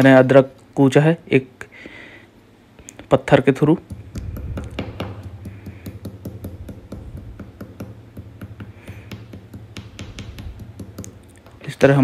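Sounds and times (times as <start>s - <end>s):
low steady hum: 0.0s - 12.0s
stone crushing ginger on countertop: 3.7s - 11.6s.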